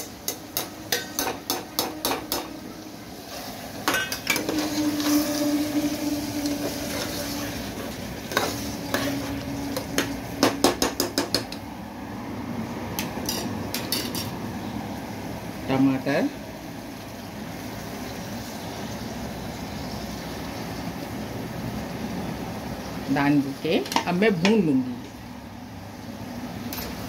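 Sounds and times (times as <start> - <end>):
metal spoon stirring in metal pot: 0.0 - 2.6, 3.2 - 11.6.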